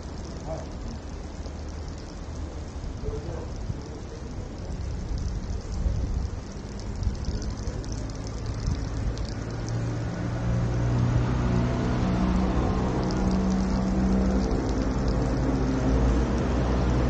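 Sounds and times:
steady hiss: 0:00.0 - 0:17.0
vehicle engine low hum: 0:00.0 - 0:17.0.

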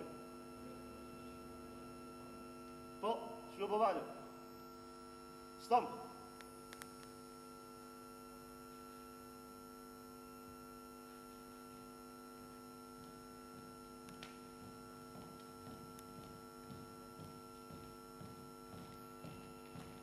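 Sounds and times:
electrical hum: 0:00.0 - 0:20.0
faint footsteps: 0:12.4 - 0:20.0.

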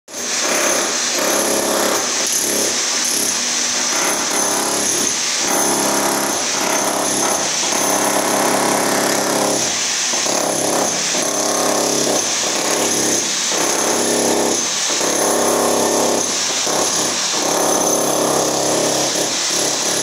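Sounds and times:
demolition hammer breaking tile: 0:00.1 - 0:20.0.

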